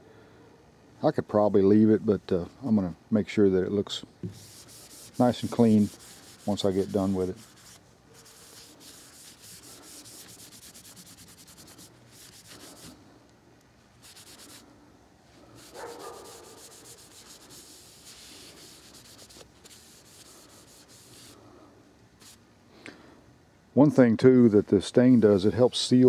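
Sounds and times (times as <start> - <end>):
hand rubbing wood: 4.2 - 13.1, 14.0 - 14.7, 15.4 - 21.4, 22.2 - 22.4.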